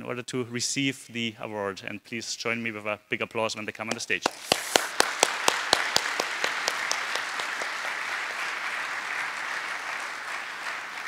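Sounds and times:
loud close single claps: 3.9 - 8.5
audience applause: 4.2 - 11.0.

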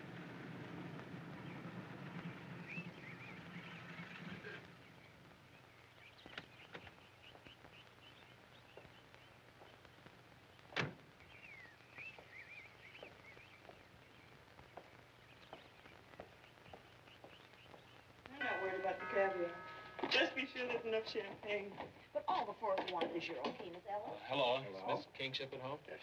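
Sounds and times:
car engine hum: 0.0 - 5.8
birds chirping: 0.0 - 26.0
footsteps on cobbles: 5.4 - 23.8.

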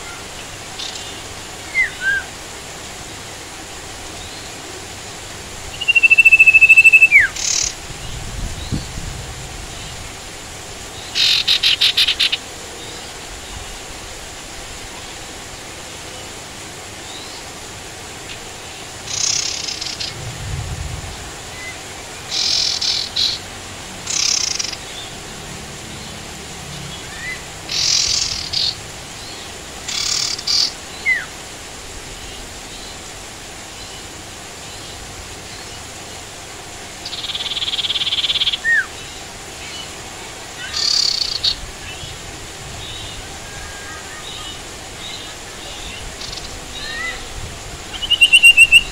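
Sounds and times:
rain hiss: 0.0 - 48.9
songbird chirping: 5.7 - 9.0, 47.9 - 48.9.

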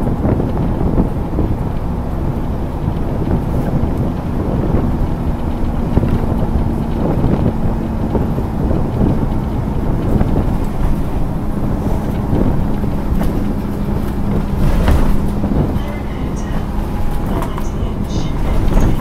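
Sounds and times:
bus engine drone: 0.0 - 19.0
road rumble: 0.0 - 19.0.

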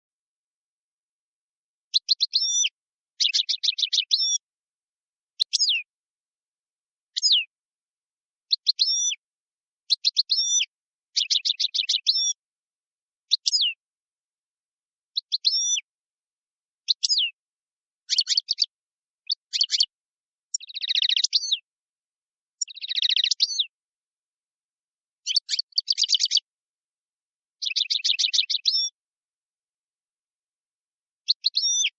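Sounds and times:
songbird singing: 1.9 - 4.5, 5.3 - 5.9, 7.1 - 7.6, 8.4 - 9.2, 9.9 - 12.4, 13.2 - 13.8, 15.1 - 15.9, 16.8 - 17.4, 18.0 - 21.7, 22.5 - 23.8, 25.2 - 26.6, 27.6 - 29.0, 31.2 - 31.9.

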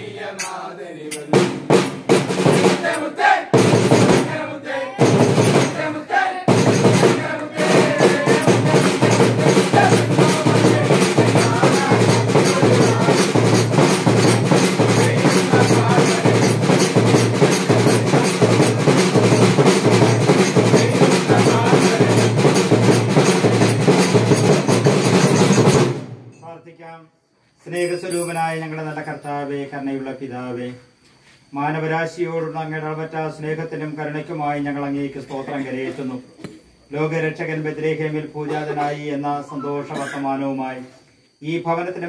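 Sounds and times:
christmas band music: 0.4 - 26.2
fast drum beat: 1.2 - 26.1.

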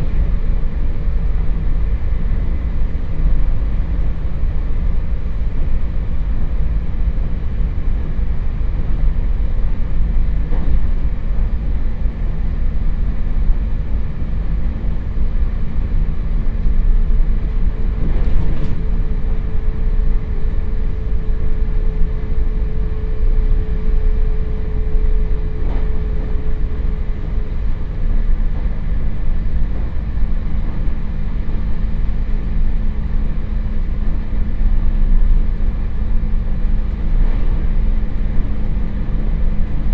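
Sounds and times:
train wheels rumbling on rails: 0.0 - 39.9
low hum: 16.6 - 39.9.

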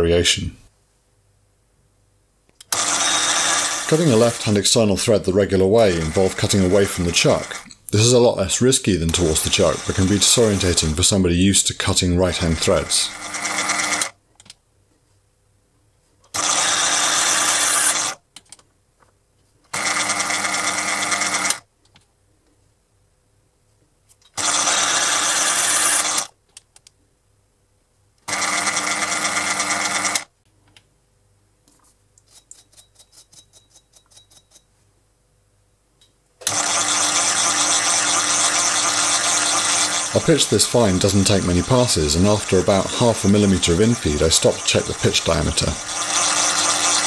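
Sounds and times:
mini lathe running: 2.7 - 4.8, 5.6 - 7.7, 9.1 - 11.0, 12.3 - 14.1, 16.4 - 18.2, 19.8 - 21.6, 24.4 - 26.3, 28.3 - 30.3, 36.4 - 47.0.

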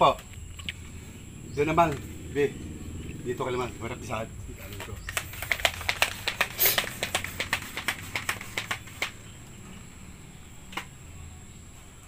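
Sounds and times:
sharp plastic clicks: 4.7 - 9.3.

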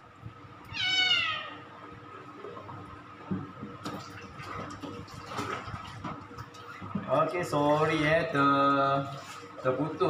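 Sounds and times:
cat meowing: 0.7 - 1.6.

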